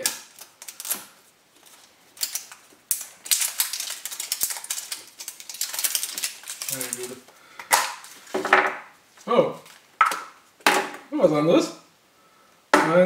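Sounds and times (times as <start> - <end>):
wrapper crinkling: 0.0 - 8.5.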